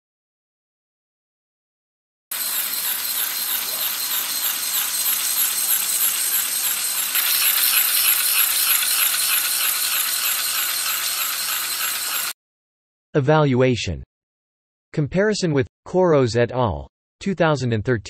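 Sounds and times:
small motor whirring: 0:02.3 - 0:12.4.

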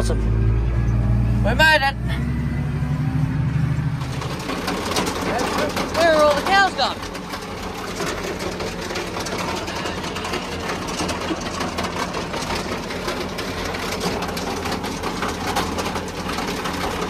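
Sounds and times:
tractor engine running: 0:00.0 - 0:17.0
wagon clattering: 0:03.6 - 0:17.0
conveyor rattling fast: 0:03.7 - 0:17.0.

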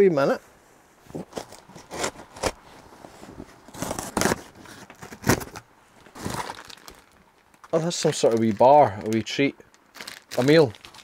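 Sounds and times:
tape and cardboard ripping: 0:01.2 - 0:02.6, 0:03.7 - 0:07.1
blade cutting cardboard box: 0:01.3 - 0:02.6, 0:03.7 - 0:05.5.

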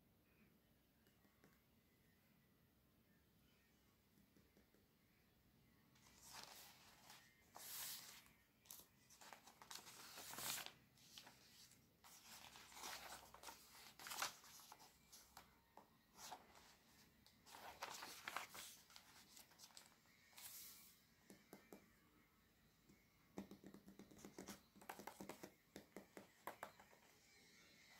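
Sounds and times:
page being turned: 0:06.0 - 0:15.4, 0:17.4 - 0:20.9.

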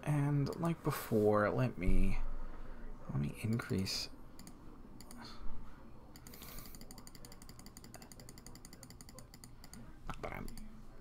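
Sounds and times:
computer mouse clicking rapidly: 0:04.4 - 0:05.2, 0:06.2 - 0:10.7.

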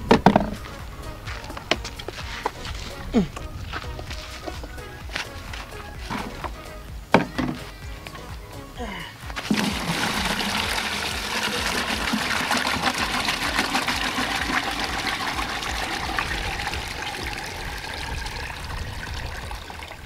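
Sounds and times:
water pouring into a bucket: 0:09.4 - 0:20.0.

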